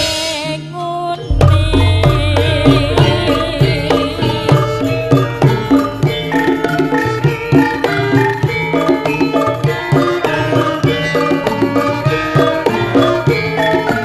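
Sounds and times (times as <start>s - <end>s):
woman singing with vibrato: 0.0s - 7.4s
deep low note: 1.3s - 6.3s
struck bronze metallophones: 1.3s - 9.6s
drums beating: 1.3s - 14.0s.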